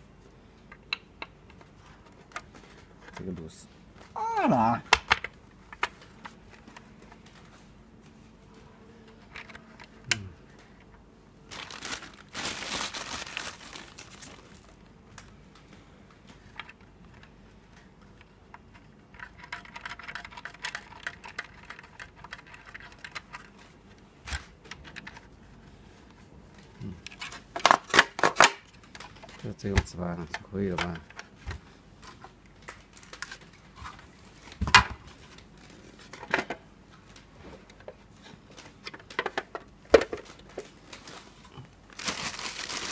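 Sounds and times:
plastic crinkling: 11.5 - 14.8, 40.2 - 42.9.

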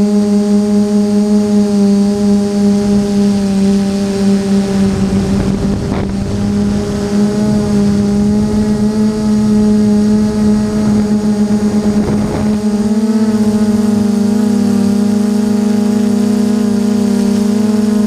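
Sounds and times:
drone propellers humming: 0.0 - 18.0
rushes of air: 2.2 - 15.2.

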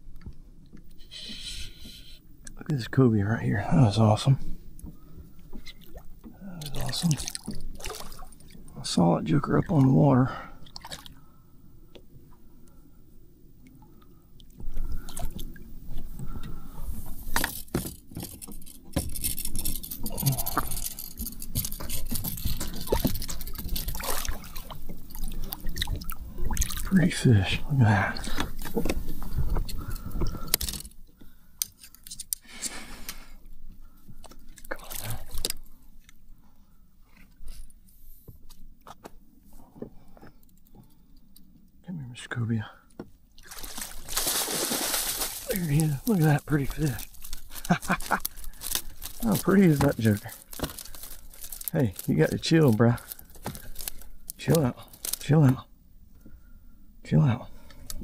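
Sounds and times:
low water and air noise: 0.0 - 58.0
water splashing: 5.7 - 8.7, 10.6 - 11.1, 22.9 - 27.0, 43.4 - 53.2
knocks and scrapes of handling: 16.0 - 24.1, 43.0 - 52.2.

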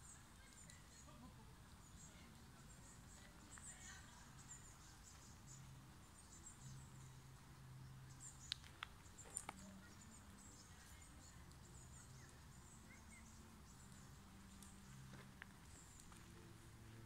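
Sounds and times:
soft clicks: 8.4 - 9.7.

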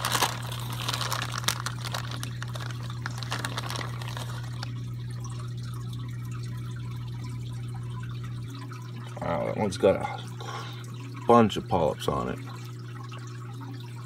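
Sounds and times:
plastic packing crinkling: 0.0 - 4.9
aquarium filter hum: 0.0 - 14.0
water trickling: 0.0 - 14.0.

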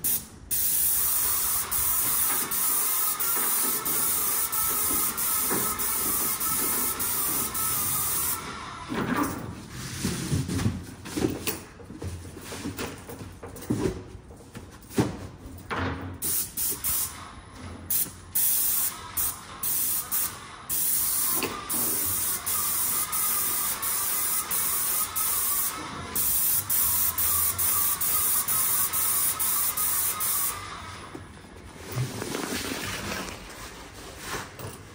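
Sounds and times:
paint sprayer hissing: 0.0 - 8.7, 16.2 - 17.3, 17.9 - 30.8.

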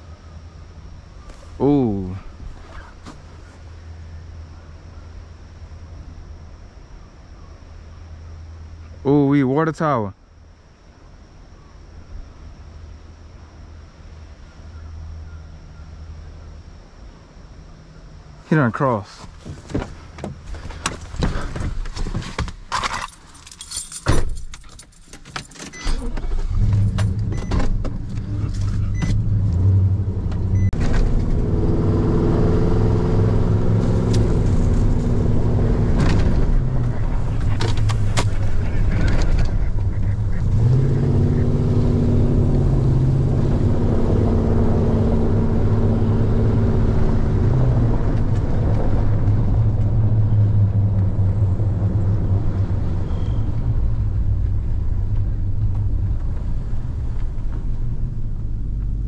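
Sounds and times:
knocks and rattles in cab: 19.3 - 28.3
truck engine running: 25.8 - 59.0.

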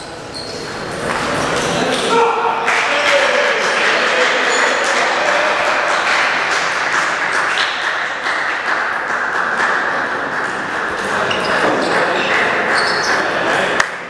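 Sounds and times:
spectators applauding: 2.6 - 13.8.

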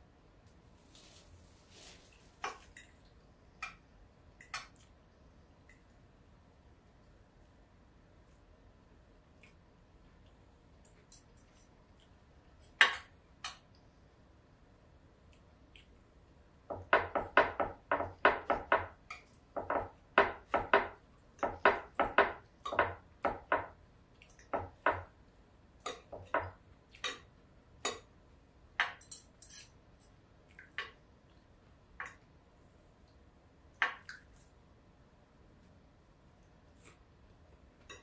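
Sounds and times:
knife and fork clinking on plate: 28.9 - 29.8.

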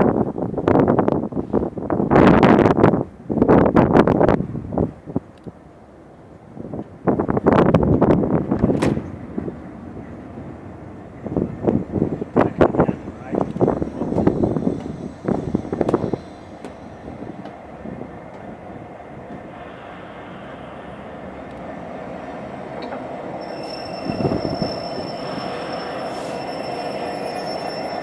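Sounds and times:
train rolling slowly: 0.1 - 28.0
high-pitched wheel squeal: 23.3 - 28.0.

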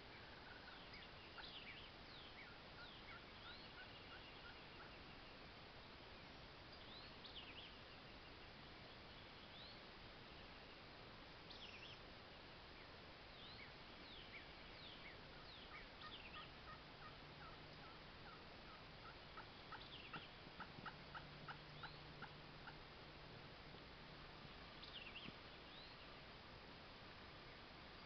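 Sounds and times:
songbird chirps: 0.0 - 28.0
wild turkey yelps: 0.2 - 1.8, 2.4 - 5.0, 15.4 - 22.8.

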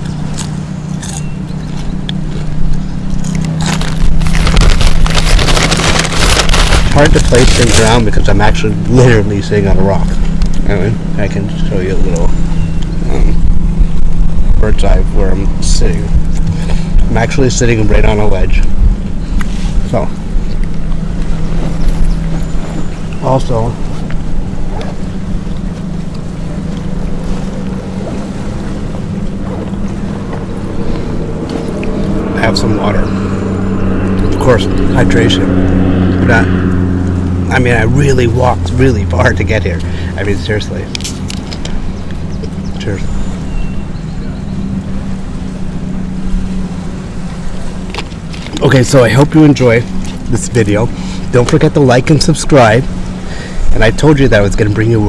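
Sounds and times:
chewing crunchy food: 0.0 - 7.9
low engine drone: 0.0 - 55.0
paper bag crinkling: 3.6 - 8.0.

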